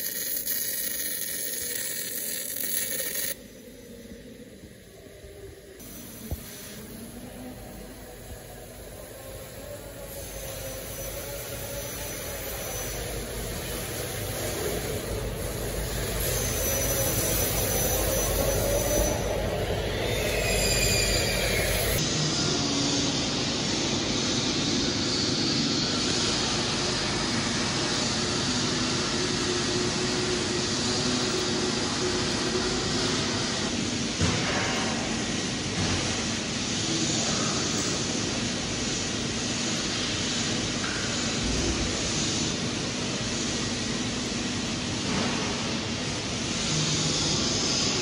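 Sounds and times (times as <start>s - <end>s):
mechanical hiss with hum: 0.0s - 48.0s.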